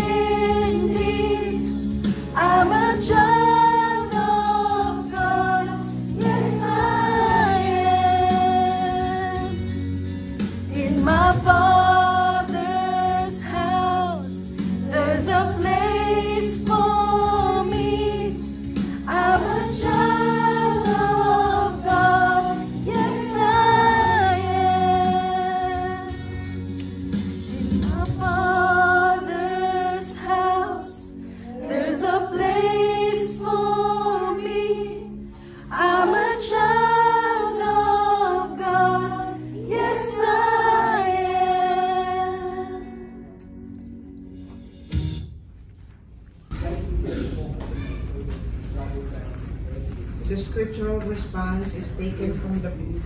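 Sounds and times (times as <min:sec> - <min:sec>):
voices singing worship song: 0:00.0 - 0:43.4.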